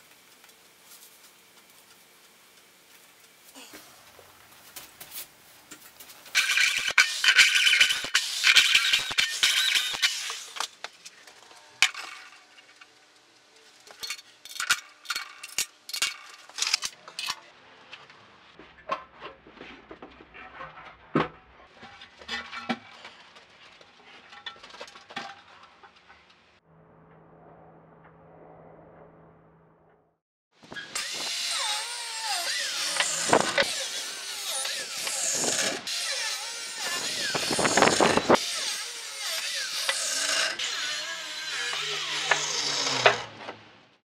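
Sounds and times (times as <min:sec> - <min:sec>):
harsh grating metal: 0:06.3 - 0:12.8, 0:30.7 - 0:43.4.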